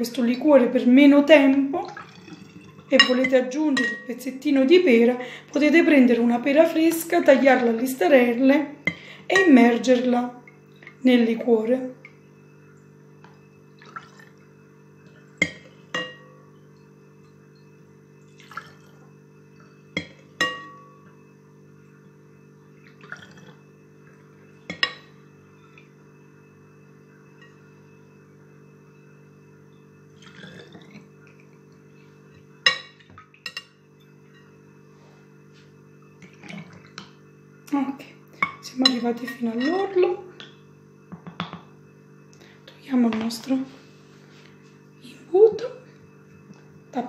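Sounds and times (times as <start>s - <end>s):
liquid pouring: 1.7s - 3.0s, 13.7s - 14.5s, 18.2s - 19.1s, 22.8s - 23.6s, 30.2s - 31.6s.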